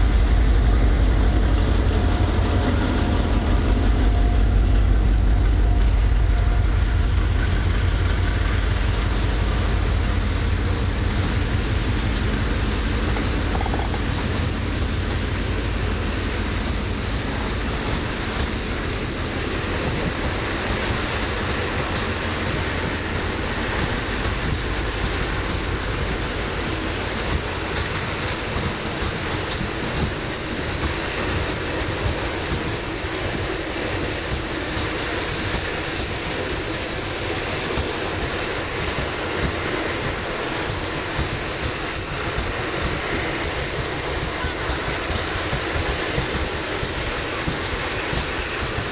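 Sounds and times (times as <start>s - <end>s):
train wheels rumbling on rail: 0.0s - 48.9s
high wheel squeaks: 13.5s - 14.8s, 18.4s - 18.9s, 22.2s - 22.7s, 27.8s - 28.6s, 30.2s - 30.6s, 31.2s - 31.8s, 32.8s - 33.3s, 40.6s - 41.8s, 46.6s - 47.3s.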